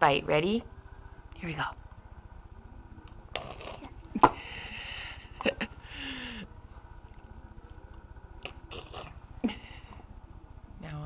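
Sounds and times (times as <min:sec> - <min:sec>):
baby blowing raspberries: 0:08.4 - 0:09.2.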